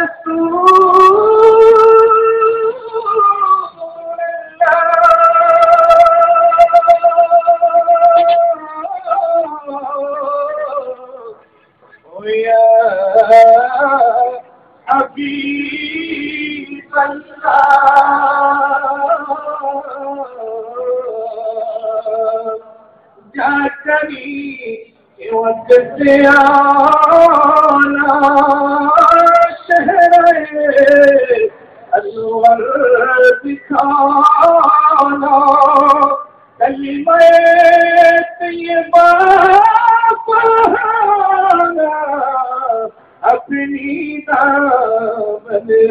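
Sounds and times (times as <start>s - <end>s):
men singing devotional chant: 0.0s - 45.9s.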